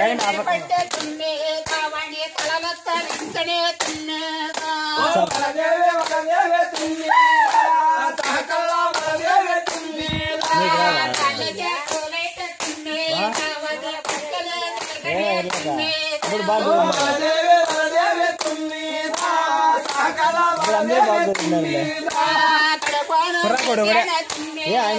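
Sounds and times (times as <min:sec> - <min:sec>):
rhythmic hand clapping: 0:00.0 - 0:24.9
voices singing: 0:00.0 - 0:24.9.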